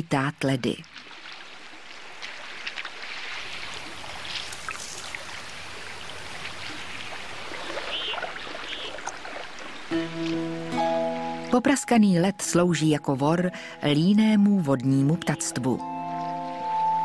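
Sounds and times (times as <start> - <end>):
river water running and trickling: 0.5 - 11.6.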